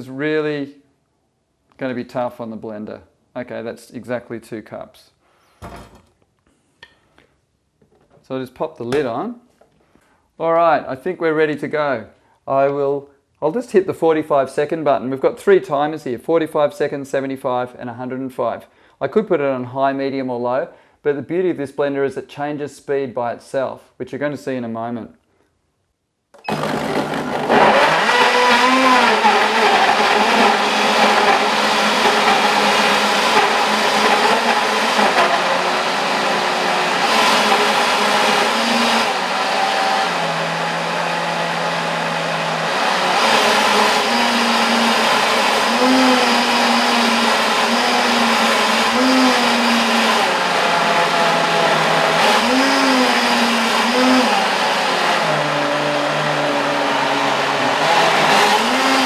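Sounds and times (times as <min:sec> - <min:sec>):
blender running: 0:26.4 - 0:59.0.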